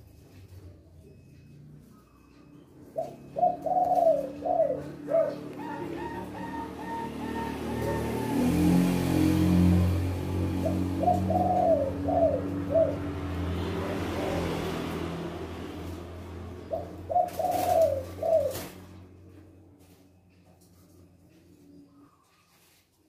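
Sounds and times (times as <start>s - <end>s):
doves cooing: 2.0s - 19.5s.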